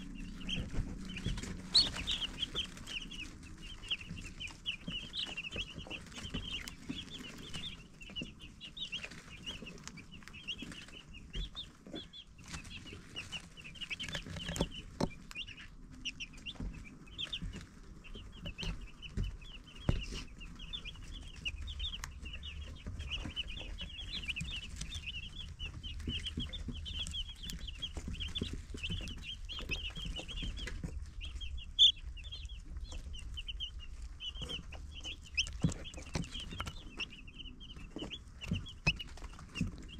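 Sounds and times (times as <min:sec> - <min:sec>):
low hum: 0:00.0 - 0:07.8
baby chicks peeping: 0:00.0 - 0:39.9.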